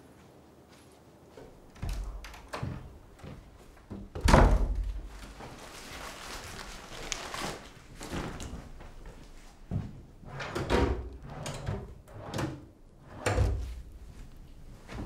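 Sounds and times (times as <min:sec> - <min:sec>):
door shutting with heavy thud: 0:04.0 - 0:05.1.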